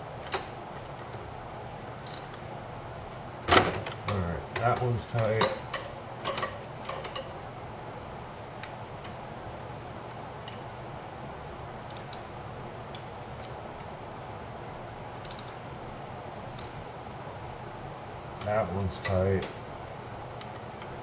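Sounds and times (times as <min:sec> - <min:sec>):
steady low hum: 0:00.0 - 0:21.0
metallic clicks of hand wrenches: 0:03.8 - 0:07.3.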